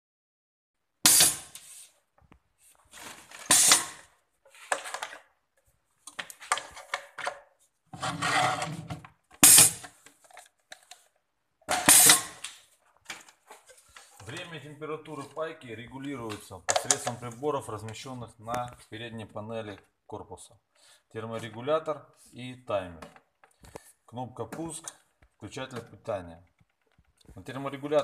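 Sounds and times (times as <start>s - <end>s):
pneumatic jaws bursting: 1.0s - 1.7s, 3.4s - 4.0s, 9.4s - 9.9s, 11.7s - 12.4s
handling knocks and rustles: 2.2s - 5.3s.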